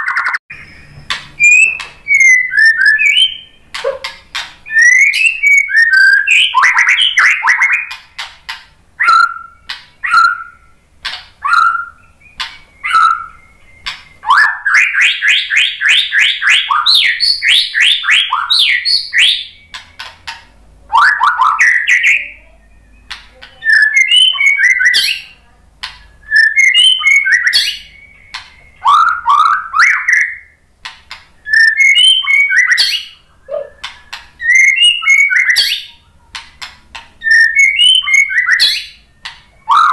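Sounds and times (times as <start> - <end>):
bird singing whistled notes: 0.0 - 8.0, 9.0 - 20.2, 20.9 - 30.6, 31.4 - 36.2, 37.2 - 39.9
bird clicks: 3.7 - 4.6, 12.4 - 12.7, 13.8 - 14.1, 36.3 - 37.2.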